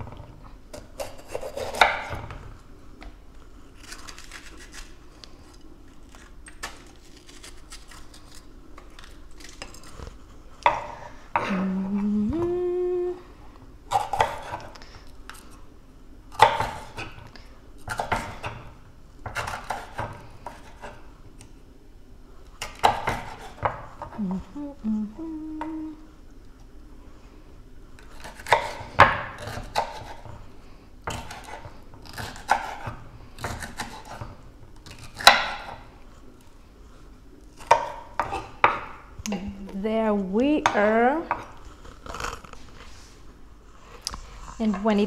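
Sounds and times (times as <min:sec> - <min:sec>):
knife chopping on wooden board: 0:00.8 - 0:02.3, 0:13.9 - 0:14.7, 0:16.4 - 0:17.2, 0:17.9 - 0:21.0, 0:28.2 - 0:30.4, 0:31.1 - 0:34.2, 0:34.8 - 0:35.8, 0:37.6 - 0:38.9
woman humming: 0:11.4 - 0:13.4, 0:24.1 - 0:26.2.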